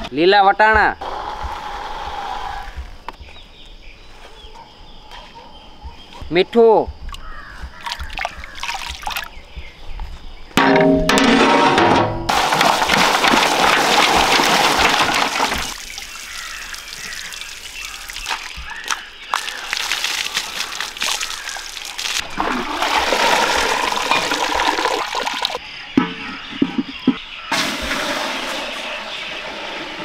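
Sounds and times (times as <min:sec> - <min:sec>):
water dripping: 0:07.0 - 0:09.4, 0:12.3 - 0:25.6
water pouring and splashing: 0:07.8 - 0:09.4, 0:12.3 - 0:25.6, 0:27.5 - 0:30.0.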